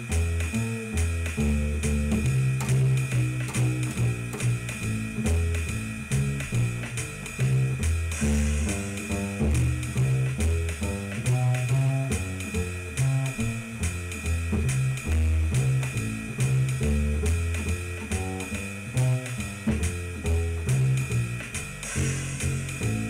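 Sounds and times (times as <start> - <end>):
plucked double bass walking line: 0.0 - 23.0.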